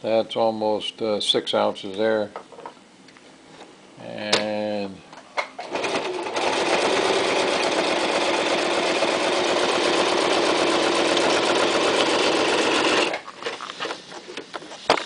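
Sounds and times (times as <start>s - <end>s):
sewing machine stitching: 5.6s - 13.2s.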